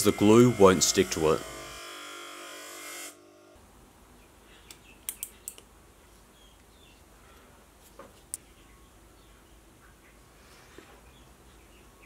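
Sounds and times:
abrasive wheel grinding metal: 0.0 - 3.2
light clicks of small parts: 4.6 - 5.7.

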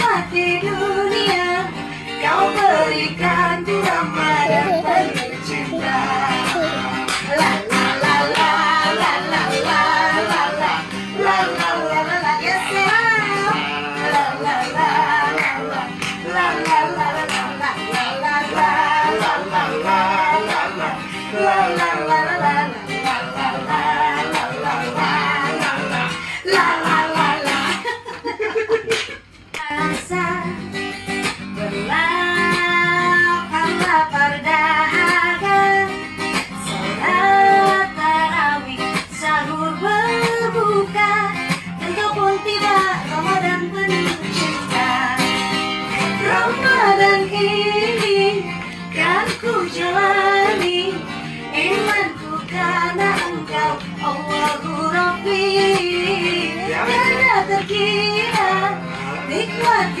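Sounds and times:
acoustic guitar strumming: 0.0 - 28.4, 29.7 - 60.0
voices singing slow melody: 0.0 - 28.6, 29.6 - 60.0.

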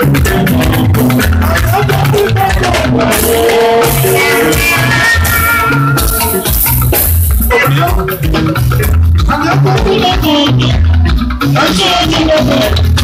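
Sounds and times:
busy percussion: 0.0 - 13.0
heavy bass line: 0.0 - 13.0
pedal steel guitar sliding melody: 2.9 - 7.5.

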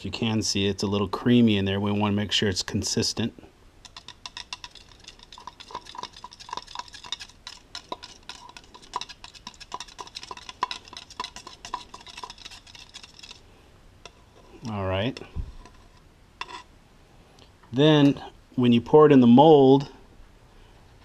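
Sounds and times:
metal rod scraping plastic cup: 3.9 - 13.4, 14.1 - 16.7.

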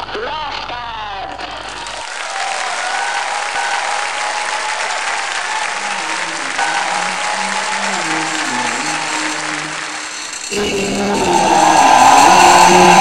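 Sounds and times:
crowd applauding: 1.8 - 13.0
held musical tone: 2.0 - 13.0
low melody: 2.1 - 13.0.

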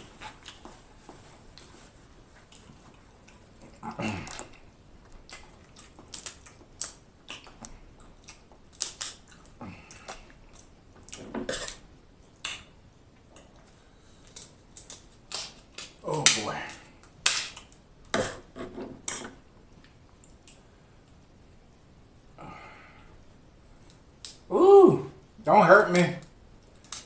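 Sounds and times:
chewing: 0.1 - 0.8, 1.5 - 16.0
crab shells snapping: 5.3 - 11.2, 14.3 - 17.8.

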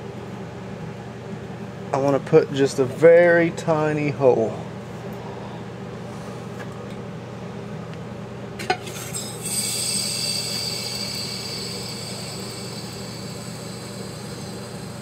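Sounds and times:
soda hissing through pinhole: 9.0 - 15.0.

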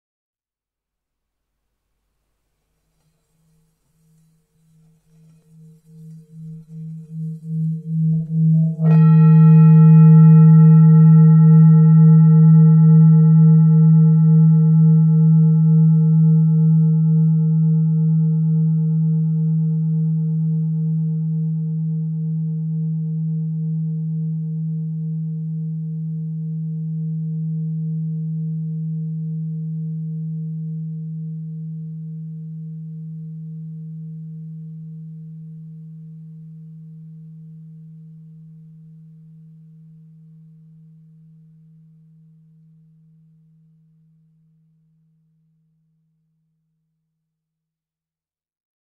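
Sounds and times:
singing bowl ringing: 3.1 - 20.4.

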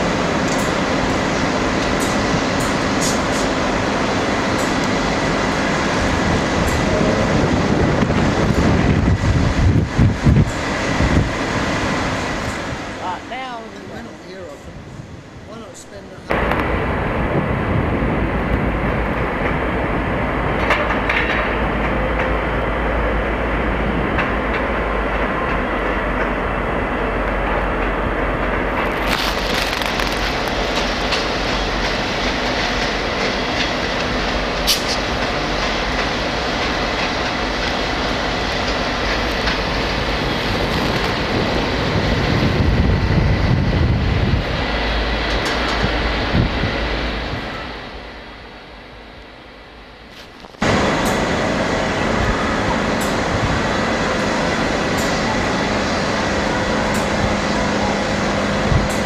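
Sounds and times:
train wheels rumbling on rail: 0.0 - 59.0
clickety-clack of wheels: 20.6 - 22.4.

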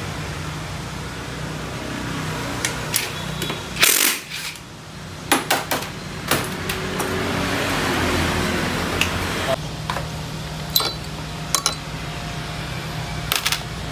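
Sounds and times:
steady low hum: 8.7 - 13.9.

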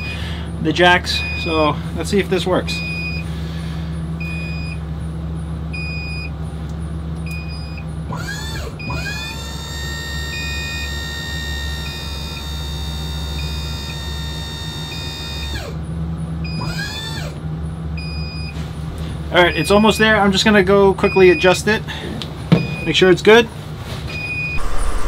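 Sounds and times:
hydraulic pump whining: 8.1 - 17.4
steady low hum: 24.5 - 25.0.

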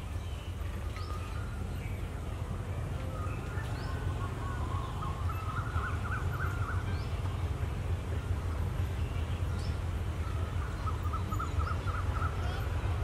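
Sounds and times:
birds chirping: 0.0 - 13.0
diesel locomotive rumble: 0.0 - 13.0
bird warbling trill: 3.2 - 7.2, 10.5 - 12.6.

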